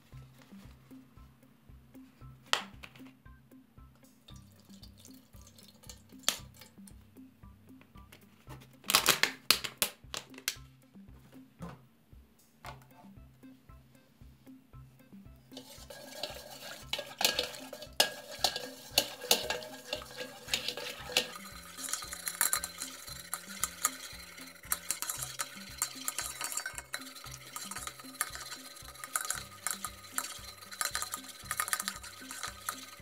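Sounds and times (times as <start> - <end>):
background music with steady beat: 0.0 - 33.0
whisk scraping and tapping bowl: 15.5 - 33.0.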